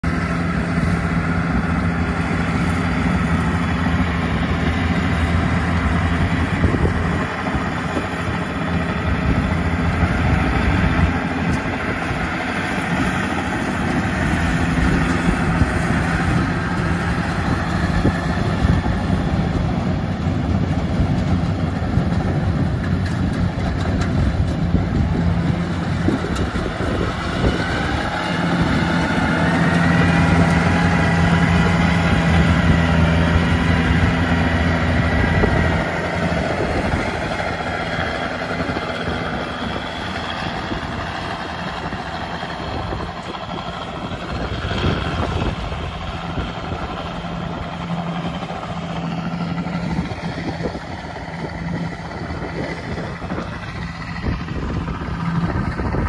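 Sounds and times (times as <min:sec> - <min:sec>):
combine harvester engine drone: 0:00.0 - 0:56.0
tracked carrier engine: 0:00.0 - 0:56.0.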